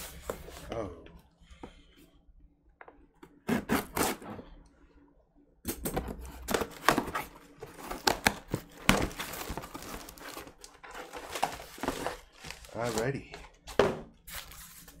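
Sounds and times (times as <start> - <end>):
cardboard box being opened: 6.6 - 13.1.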